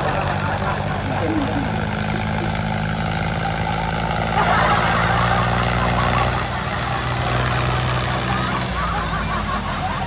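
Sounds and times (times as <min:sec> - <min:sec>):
motor grinding: 0:00.0 - 0:08.6
electric gear motor humming: 0:00.8 - 0:04.4.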